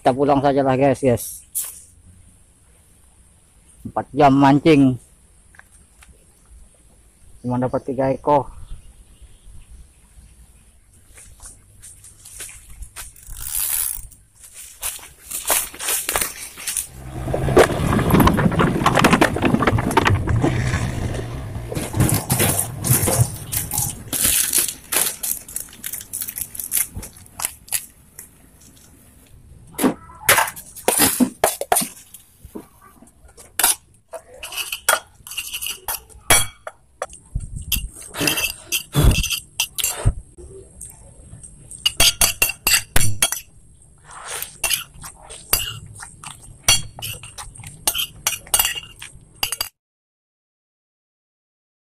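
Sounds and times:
spoon clinking on ceramic plate: 46.7s - 49.7s.

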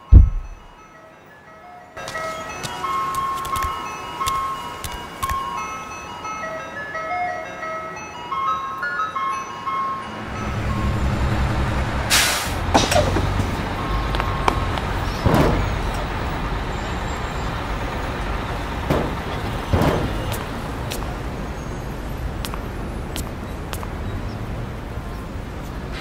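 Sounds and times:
bus engine running: 10.2s - 26.0s
air-brake hisses: 12.1s - 13.1s.

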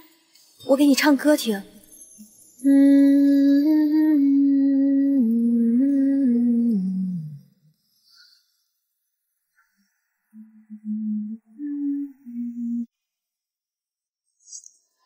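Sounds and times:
woman humming a gentle tune: 2.6s - 7.6s, 10.3s - 12.9s.

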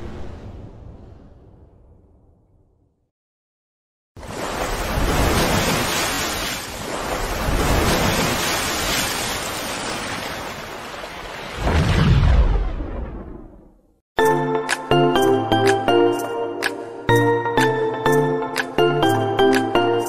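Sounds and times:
splashing water whoosh: 4.2s - 13.3s.

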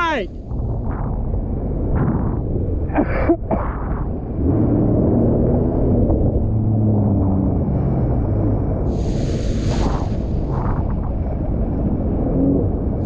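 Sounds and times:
person shouting: 0.0s - 0.3s.

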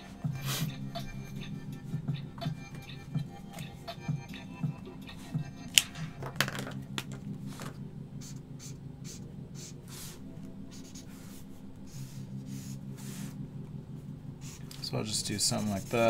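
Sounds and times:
marker scratching on paper: 8.2s - 13.4s.

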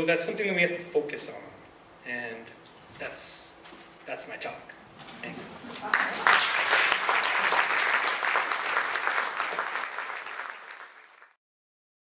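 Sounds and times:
audience applauding: 5.7s - 11.4s.

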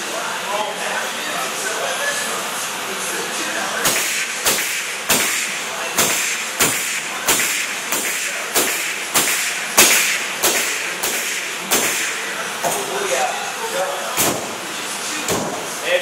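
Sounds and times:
nail gun firing into wood: 3.8s - 12.2s.

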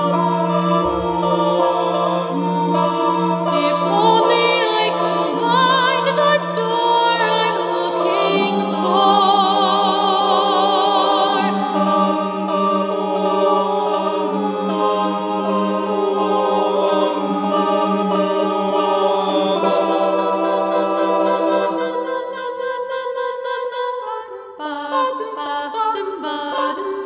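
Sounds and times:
voice with wide vibrato: 0.0s - 11.9s
mixed choir singing: 0.0s - 27.0s.

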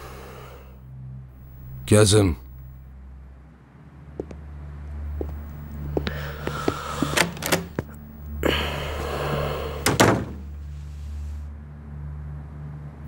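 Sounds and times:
footsteps: 4.2s - 4.4s, 5.1s - 8.4s
wooden door shutting with a thud: 9.8s - 10.5s.

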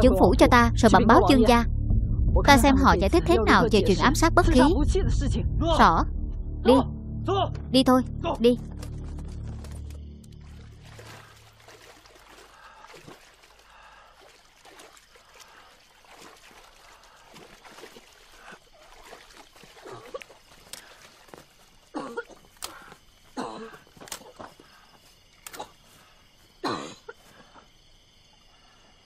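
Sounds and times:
water trickling and splashing: 8.6s - 26.6s.

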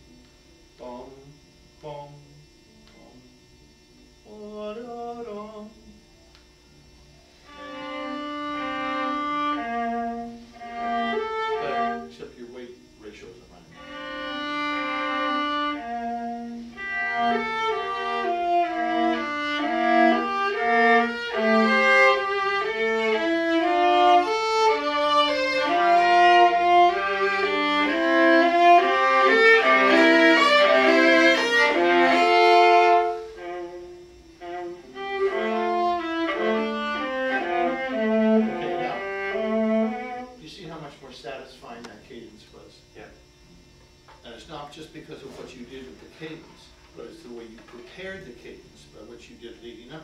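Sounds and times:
solo viola melody: 7.4s - 12.2s, 13.7s - 40.4s.

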